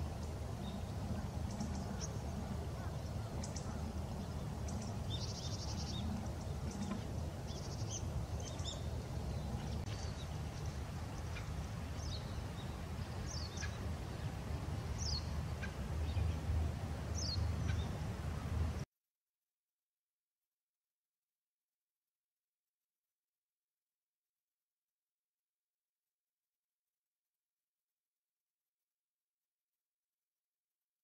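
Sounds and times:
small birds chattering: 0.0s - 16.5s
low outdoor rumble: 0.0s - 18.8s.

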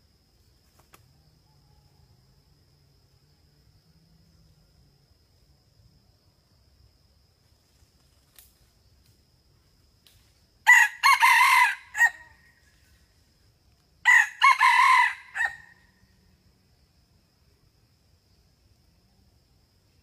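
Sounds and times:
rooster crowing: 10.6s - 12.4s, 14.0s - 15.8s.

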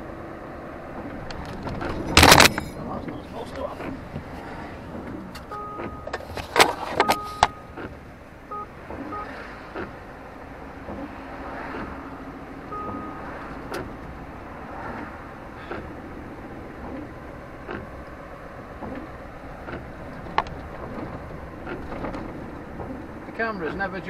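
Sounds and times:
road noise inside car: 0.0s - 24.0s
knocks and rattles: 1.0s - 5.5s, 16.7s - 23.4s
short high beeps: 5.5s - 6.2s, 7.0s - 7.8s, 8.5s - 9.4s, 11.9s - 13.6s.

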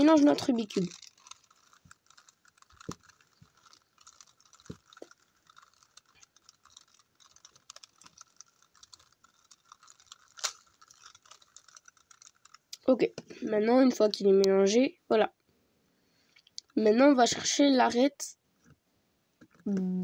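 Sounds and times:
plastic cube clicking: 0.0s - 12.8s.

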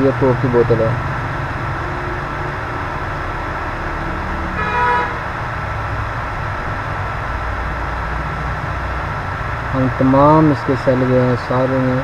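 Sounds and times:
road traffic hum: 0.0s - 12.0s
car horn toot: 4.5s - 5.3s.

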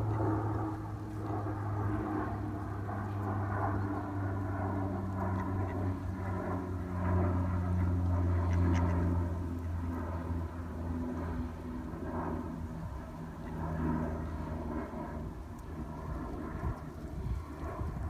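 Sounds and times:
low engine drone: 0.0s - 18.0s
duck calls: 8.4s - 9.1s.

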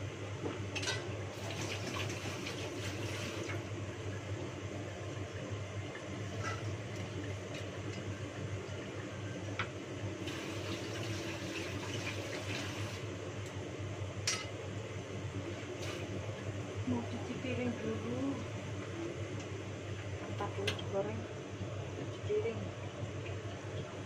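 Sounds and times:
steady low hum: 0.0s - 11.3s, 12.9s - 24.0s
water running from tap: 1.3s - 3.7s, 10.2s - 13.2s, 15.6s - 16.2s.

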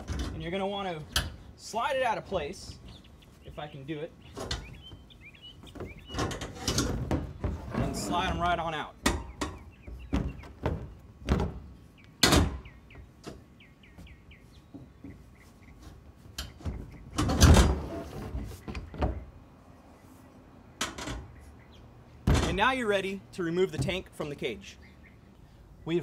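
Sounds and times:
metal bars clanking: 0.0s - 2.8s, 5.9s - 10.1s
metal bar scraping rattle: 6.0s - 9.6s, 17.2s - 18.5s.

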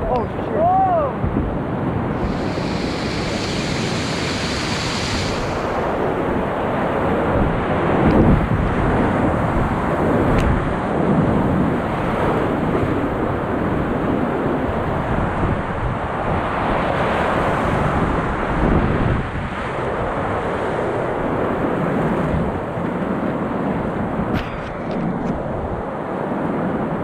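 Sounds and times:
wind buffeting microphone: 0.0s - 27.0s
whitewater rushing through rapids: 2.1s - 7.5s.

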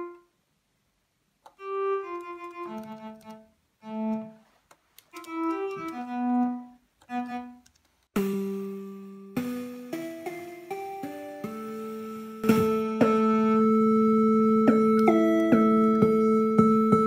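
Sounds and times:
synthesized electronic tones: 9.4s - 17.0s.

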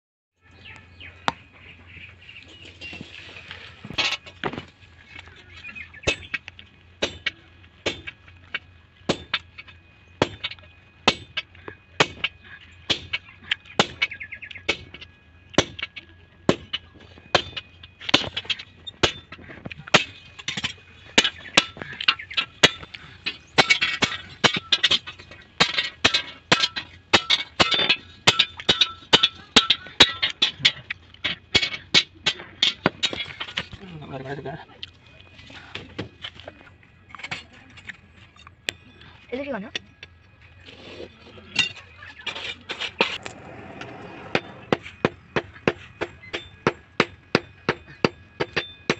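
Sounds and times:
sledgehammer striking chisel on steel: 44.3s - 48.9s.

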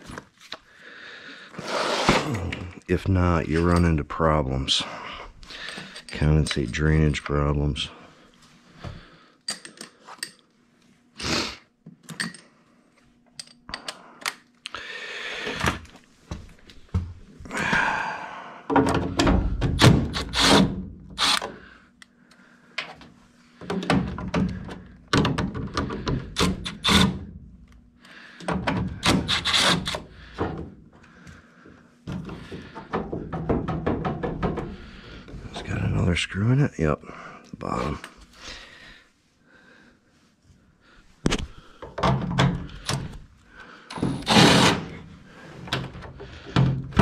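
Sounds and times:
cordless drill running: 20.1s - 21.4s, 29.1s - 30.0s, 44.1s - 45.0s.

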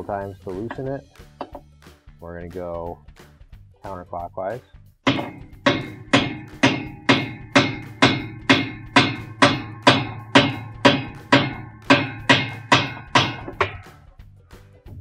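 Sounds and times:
hammer striking metal wrench: 5.1s - 13.9s.

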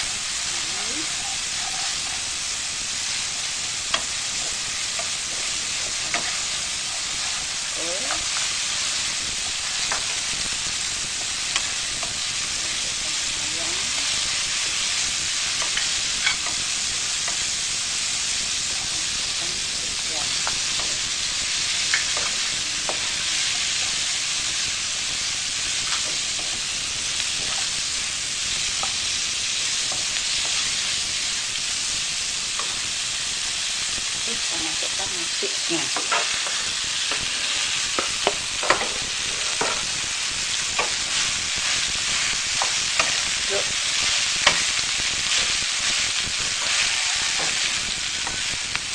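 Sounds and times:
food sizzling in a wok: 0.0s - 48.9s
spatula scraping and knocking pan: 3.9s - 7.4s, 35.9s - 40.0s, 40.6s - 48.4s.

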